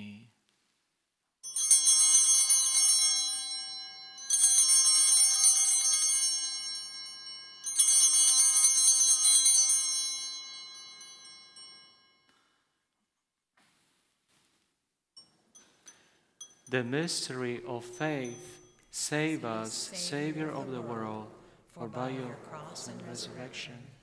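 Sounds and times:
altar bells jangling: 1.4s - 12.6s, 15.2s - 21.6s.

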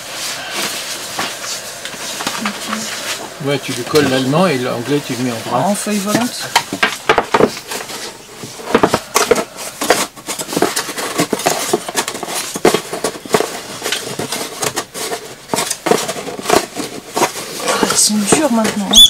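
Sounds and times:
wooden boxes clattering on workbench: 5.9s - 18.9s.

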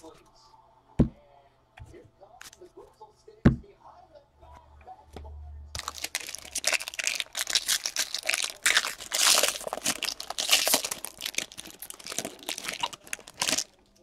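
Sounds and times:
foil wrapper tearing and crinkling: 5.8s - 14.0s.

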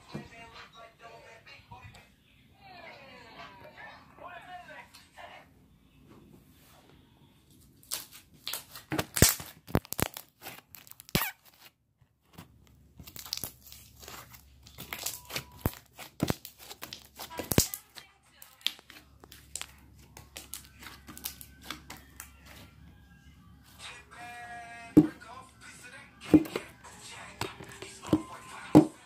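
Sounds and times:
slime clicking and popping: 7.9s - 11.3s, 13.0s - 22.3s.

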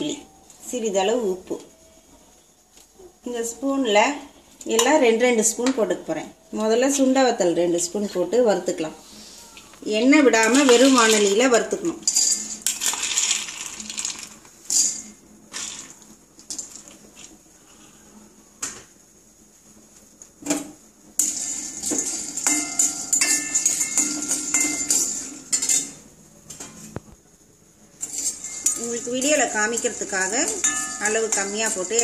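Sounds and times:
metal spoon scraping pan: 10.3s - 13.8s, 21.2s - 26.0s, 28.0s - 32.0s
berries rattling into metal pan: 10.3s - 17.0s, 21.2s - 26.0s, 28.0s - 32.0s.

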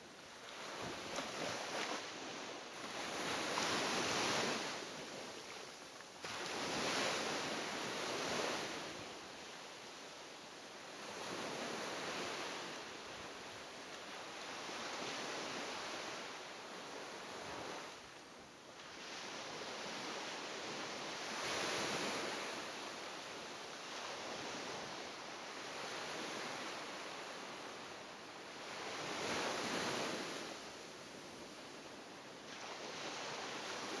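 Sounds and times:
sea waves breaking on beach: 0.0s - 34.0s.

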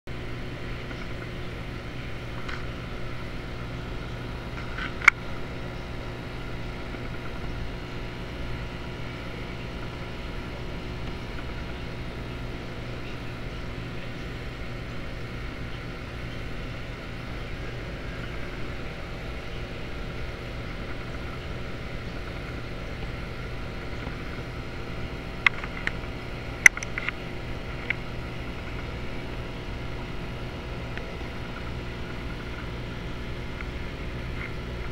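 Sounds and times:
aquarium equipment humming: 0.1s - 34.9s
sharp clicks: 26.6s - 27.2s.

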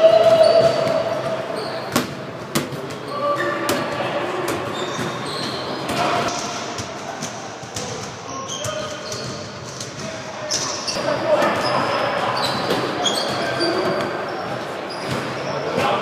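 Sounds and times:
ball hitting court walls: 0.3s - 10.1s.

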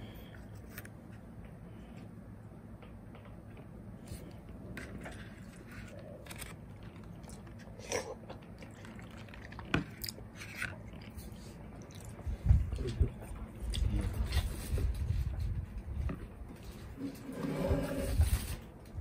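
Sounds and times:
person chewing food: 2.8s - 14.4s.

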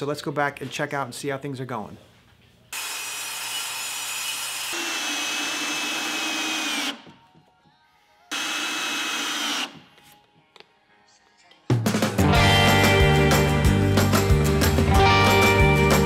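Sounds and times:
cordless drill driving screws: 2.8s - 7.1s, 8.3s - 9.8s.

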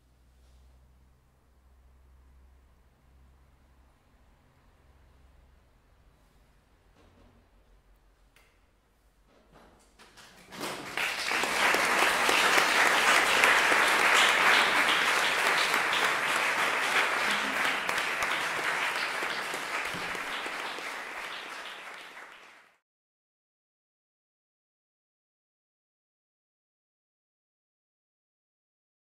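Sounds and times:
audience applauding: 10.4s - 22.8s.

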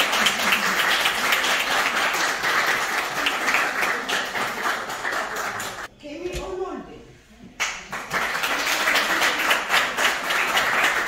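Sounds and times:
audience applauding: 0.0s - 5.9s, 7.6s - 11.0s.

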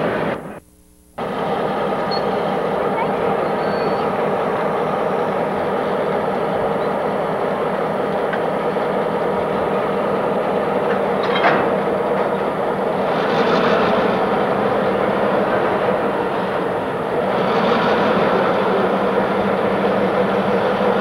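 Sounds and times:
diesel locomotive engine drone: 0.0s - 21.0s
high squeal of wheels: 3.4s - 4.1s.

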